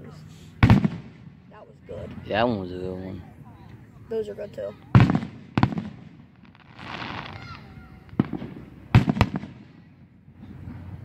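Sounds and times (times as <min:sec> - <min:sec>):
firework shells bursting: 0:05.0 - 0:09.8.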